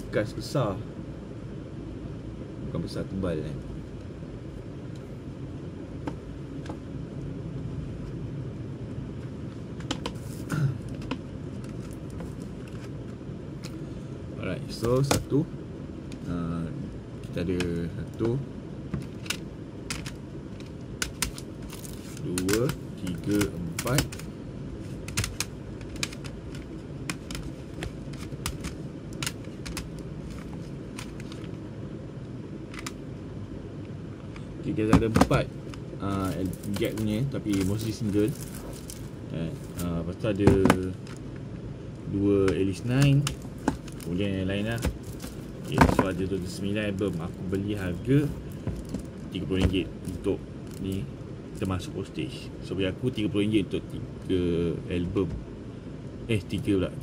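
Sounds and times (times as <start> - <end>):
low background hum: 0.0 - 57.0
plastic cases clicking: 19.0 - 24.3, 25.0 - 31.5, 36.1 - 41.2, 42.5 - 47.1.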